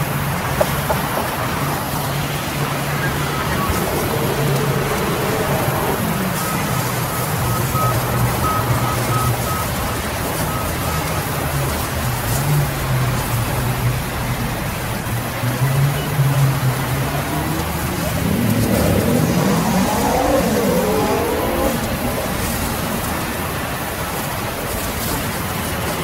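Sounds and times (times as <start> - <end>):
pitched rising and falling tone: 3.1 - 8.6, 16.5 - 22.4.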